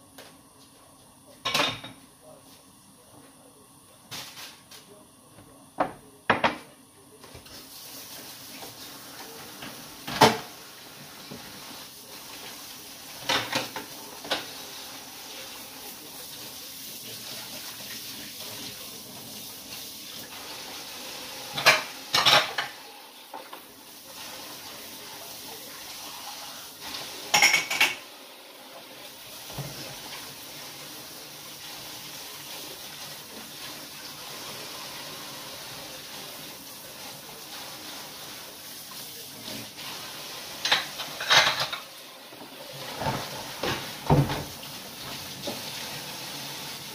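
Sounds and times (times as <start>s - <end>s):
running tap water: 7.5s - 46.9s
crockery and cutlery clinking: 21.5s - 22.8s, 27.3s - 28.0s, 40.6s - 41.9s.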